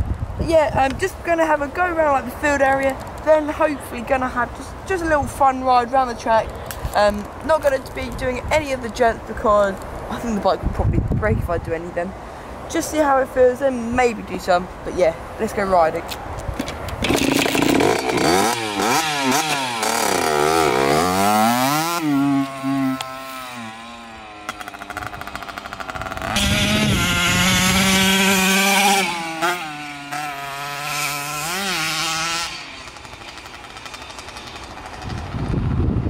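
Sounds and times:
two-stroke engine revving: 17.0s - 35.8s.

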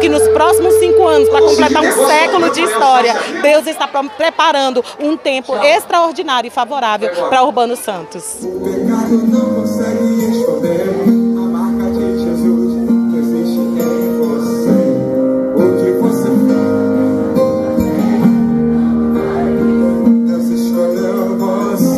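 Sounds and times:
gospel band playing: 0.0s - 5.1s, 7.0s - 21.9s
strummed guitar: 8.4s - 21.9s.

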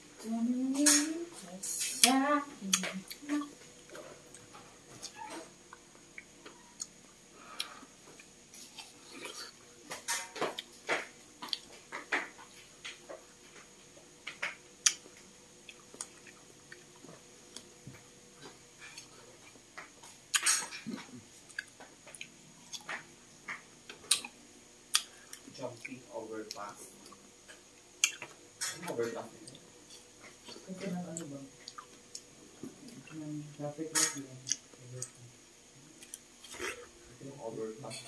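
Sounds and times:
person chewing: 2.7s - 13.7s, 14.4s - 33.2s, 34.4s - 35.3s, 36.0s - 36.9s.

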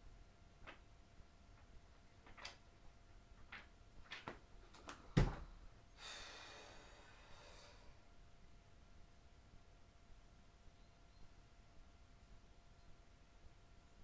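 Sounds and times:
paper pages rustling: 2.2s - 2.7s
long breathy sigh: 6.0s - 8.0s.

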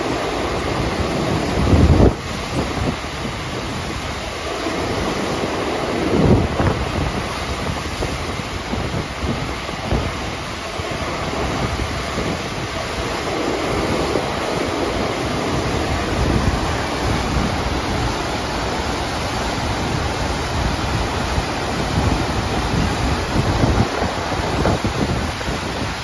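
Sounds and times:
rushing sheet of water: 0.0s - 26.0s
wind buffeting microphone: 0.0s - 26.0s.

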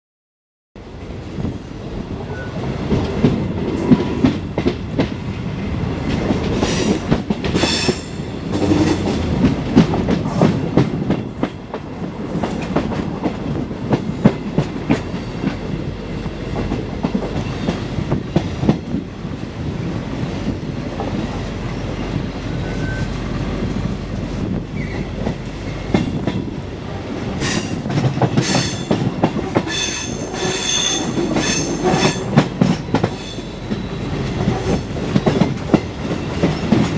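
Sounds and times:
low train rumble: 0.8s - 36.9s
train wheels clattering over rails: 2.8s - 19.4s, 20.2s - 26.6s, 27.2s - 36.9s
high-pitched wheel squeal: 22.6s - 23.2s.

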